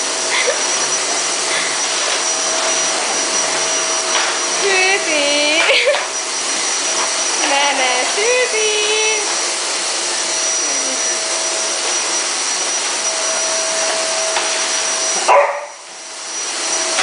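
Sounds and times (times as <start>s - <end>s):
vacuum cleaner whining: 0.0s - 17.0s
dog barking: 15.3s - 15.8s.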